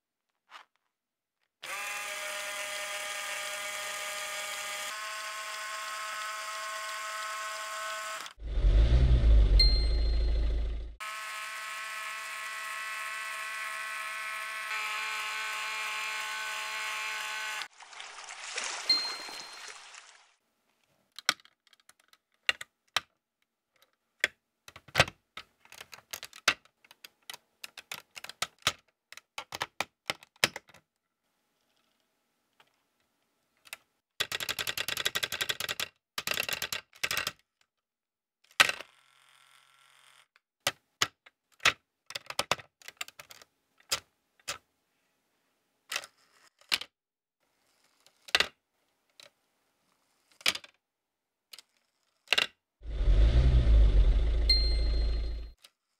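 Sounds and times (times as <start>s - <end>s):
plastic bricks clicking together: 21.1s - 23.2s, 33.6s - 37.5s, 40.6s - 44.6s, 50.4s - 50.8s.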